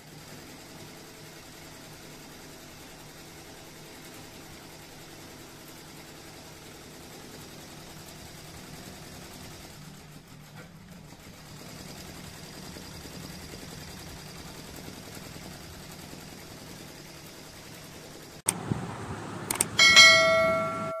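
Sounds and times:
embroidery machine humming: 18.5s - 21.0s
sharp machine clicks: 19.4s - 20.0s
ringing bell ding: 19.6s - 21.0s.

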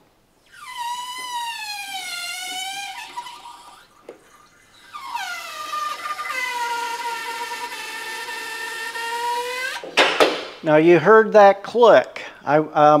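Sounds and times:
hydraulic lift whine: 0.0s - 10.0s.

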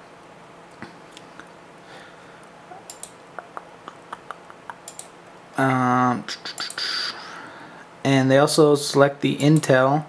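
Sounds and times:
computer mouse clicking: 2.9s - 5.2s, 6.5s - 6.8s.

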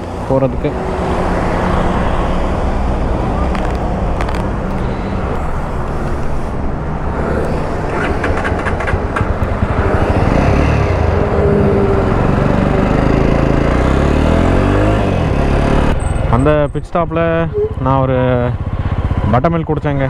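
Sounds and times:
road and wind noise: 0.0s - 20.0s
motorcycle engine accelerating: 7.0s - 16.2s.

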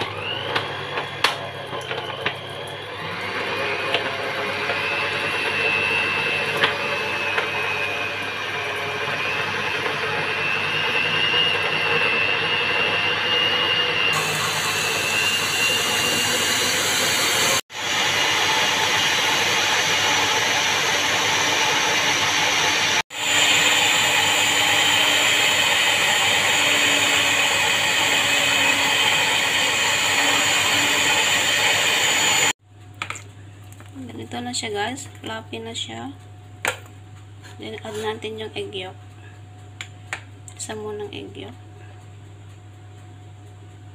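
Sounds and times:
electric mixer whining: 0.0s - 32.6s.

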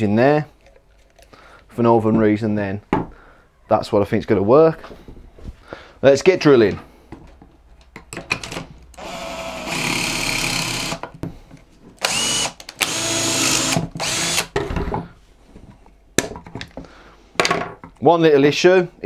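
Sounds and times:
cordless drill boring into wood: 9.0s - 11.0s, 12.0s - 14.5s.

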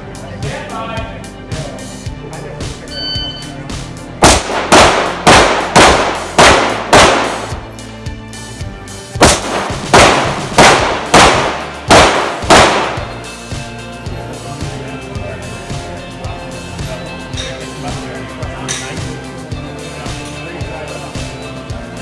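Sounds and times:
pistol shots: 4.2s - 7.6s, 9.2s - 13.2s.

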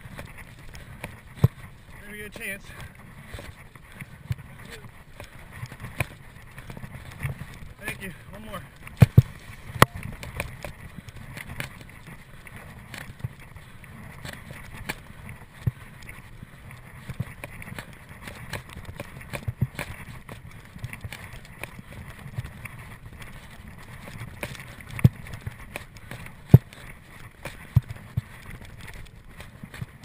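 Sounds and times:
mountain bike rumble: 0.0s - 30.0s
bike knocks and rattles: 23.0s - 28.3s.

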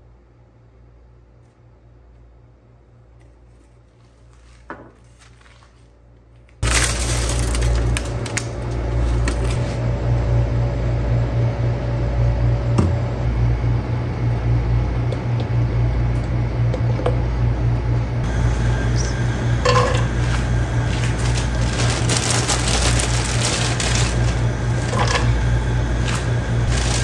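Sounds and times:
loud steady hum with drone: 6.6s - 27.0s.

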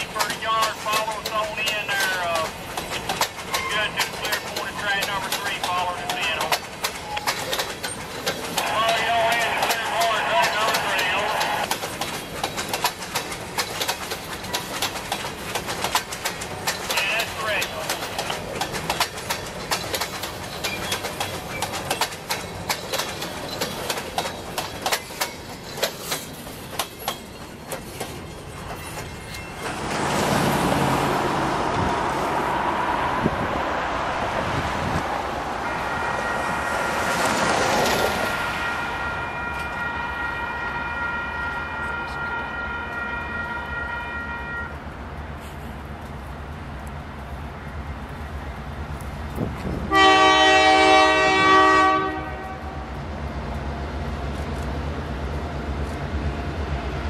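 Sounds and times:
train wheels clicking over rail joints: 0.0s - 30.6s
road traffic passing: 0.0s - 57.0s.

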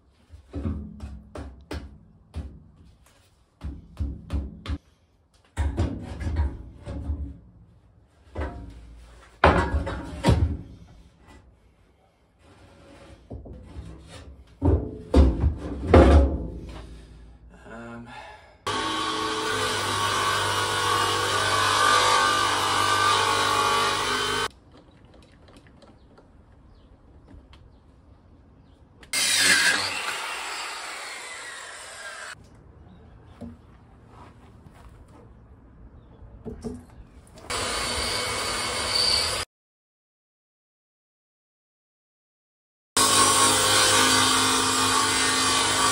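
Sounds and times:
circular saw cutting wood: 18.7s - 24.5s, 29.1s - 32.4s, 37.5s - 39.5s, 43.0s - 45.9s.

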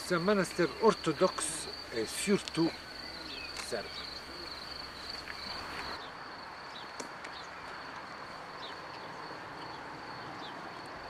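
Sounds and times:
high-pitched insect tone: 0.0s - 6.8s
falling bird chirps: 0.1s - 6.1s.

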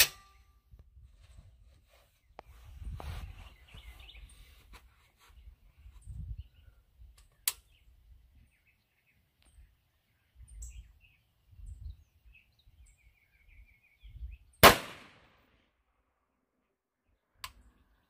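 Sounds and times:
rifle shot: 0.0s - 0.3s, 14.6s - 15.6s
sharp click: 7.2s - 7.7s.

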